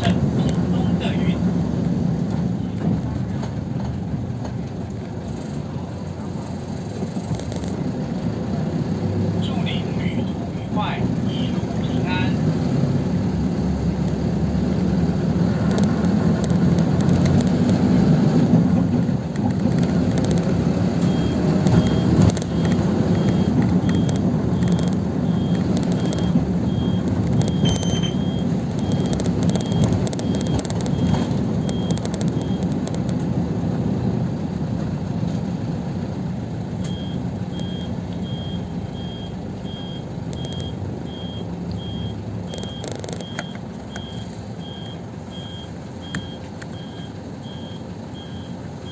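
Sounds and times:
bus engine and road noise: 0.0s - 48.9s
high electronic beep: 21.0s - 32.7s.

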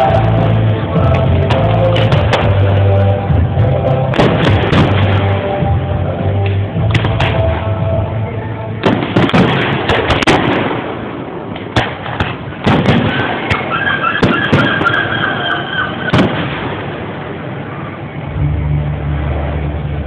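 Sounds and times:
fireworks bangs: 0.0s - 5.8s, 6.5s - 7.8s, 8.8s - 18.1s
high wavering tone: 13.7s - 16.1s.

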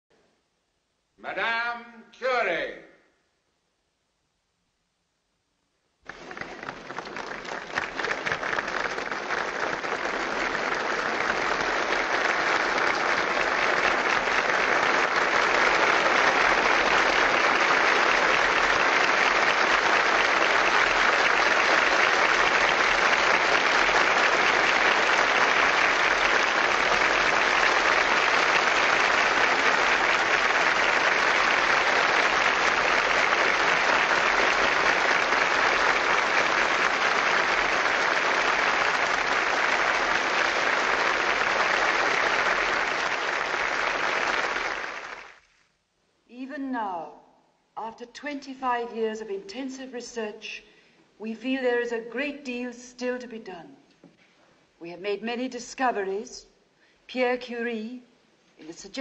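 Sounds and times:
large audience applauding: 6.0s - 45.8s.

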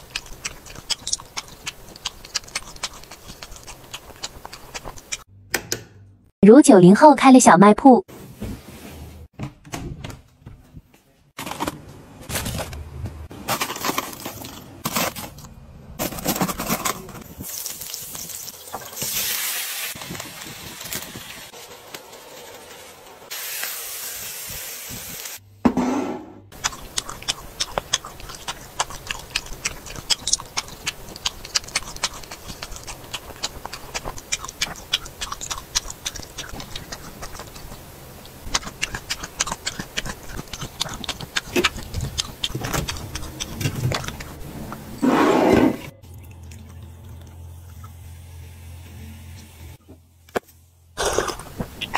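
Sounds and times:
crunchy food eating clicks: 0.0s - 5.3s, 26.5s - 44.8s
rustling and handling: 10.2s - 17.6s
food hissing in a pan: 17.5s - 21.5s, 22.2s - 25.4s.

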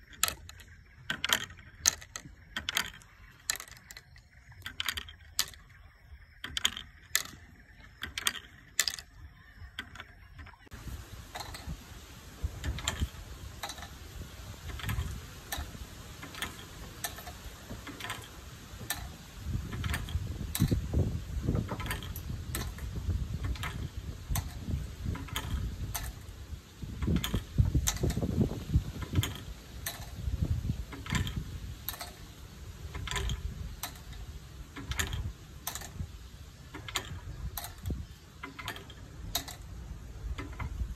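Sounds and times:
small sharp clicks: 21.5s - 26.3s, 27.0s - 40.9s.

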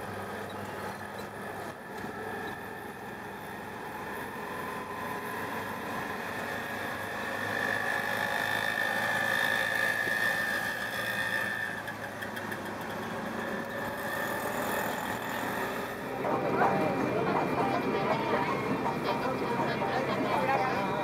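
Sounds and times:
road noise: 0.0s - 21.0s
small engine running: 0.0s - 21.0s
steady high tone: 16.0s - 21.0s.

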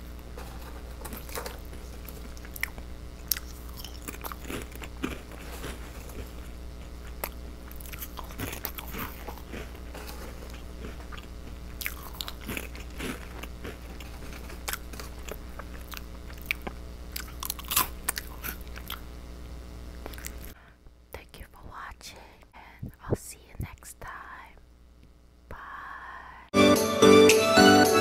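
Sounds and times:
crunching and chewing crackers: 0.0s - 19.1s, 19.9s - 20.6s.

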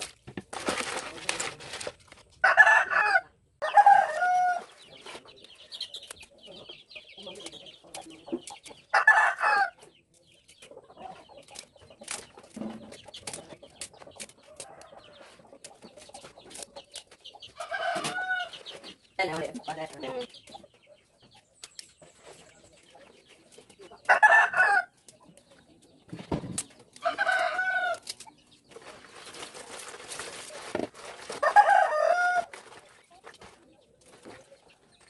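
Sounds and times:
leaves rustling in plastic basin: 0.0s - 2.4s, 26.5s - 34.6s
rooster crowing: 2.4s - 4.6s, 24.1s - 24.9s, 27.0s - 28.0s, 31.4s - 32.5s.

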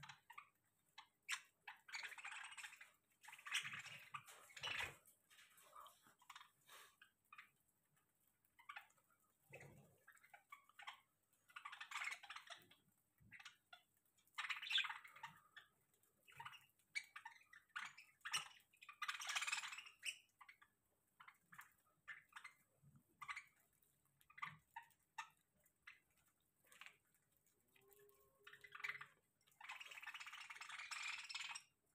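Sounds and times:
birds pecking seed: 0.0s - 31.9s
budgerigars chattering: 14.4s - 15.7s, 16.3s - 20.6s, 28.6s - 31.7s.

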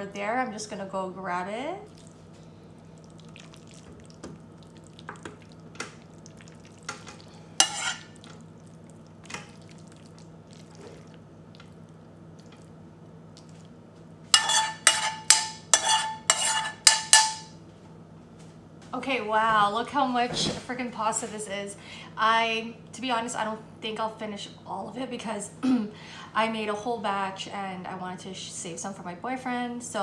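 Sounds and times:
metal spoon scraping frying pan: 7.6s - 8.2s, 14.3s - 17.5s.

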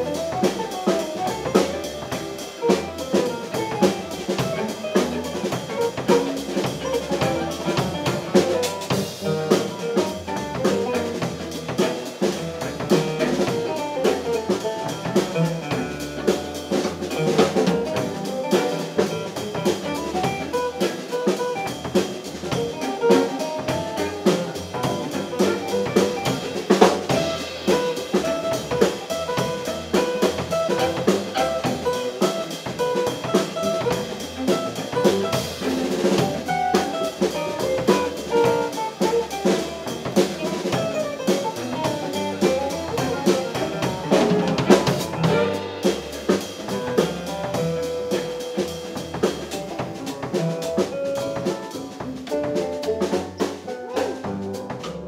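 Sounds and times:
fiddle: 0.0s - 48.2s
drum kit: 0.0s - 55.0s
upright bass: 0.0s - 55.0s
banjo: 41.6s - 46.0s, 49.6s - 55.0s.

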